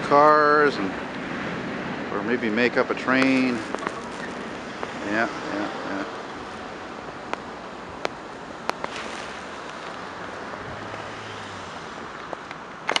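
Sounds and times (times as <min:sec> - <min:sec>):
wind on microphone: 0:00.0 - 0:12.4.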